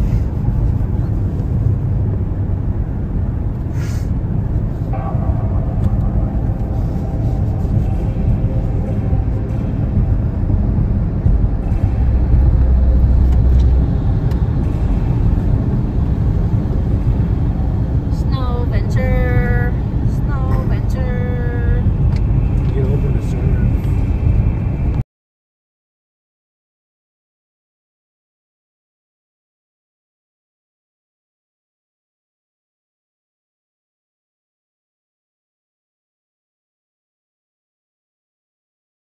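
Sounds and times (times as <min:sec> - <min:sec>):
car cabin road rumble: 0:00.0 - 0:25.0
deeper hum: 0:00.0 - 0:25.0.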